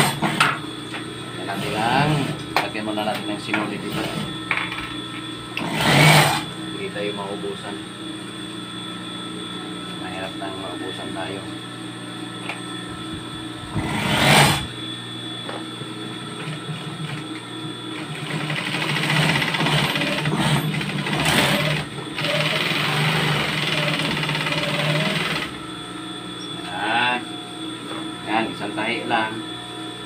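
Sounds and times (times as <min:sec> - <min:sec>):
motor humming: 0:00.0 - 0:30.0
sewing machine stitching: 0:05.6 - 0:06.4, 0:18.1 - 0:25.5.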